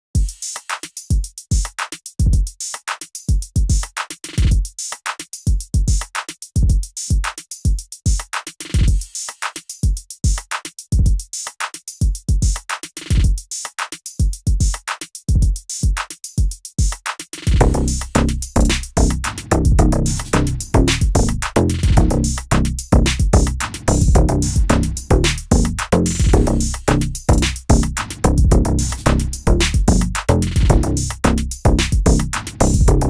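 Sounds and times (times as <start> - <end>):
hi-hat ticks: 0.2 - 33.0
deep kick drums: 17.5 - 33.0
electronic music: 17.6 - 33.0.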